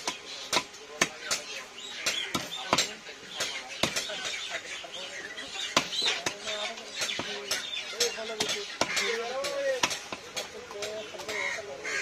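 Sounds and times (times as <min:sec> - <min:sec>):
crows calling: 0:03.4 - 0:10.0, 0:10.8 - 0:12.0.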